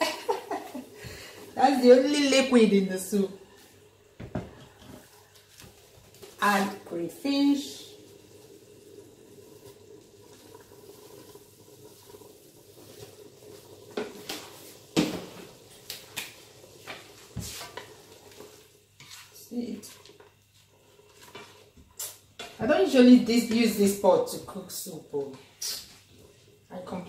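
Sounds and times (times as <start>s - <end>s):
faint sizzle: 0.0s - 27.0s
spoon stirring in a pot: 12.8s - 22.7s.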